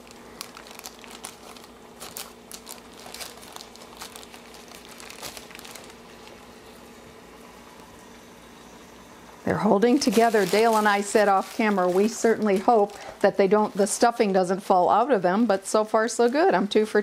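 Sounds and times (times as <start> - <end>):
wax paper crinkling: 0.0 - 7.0, 9.8 - 14.7.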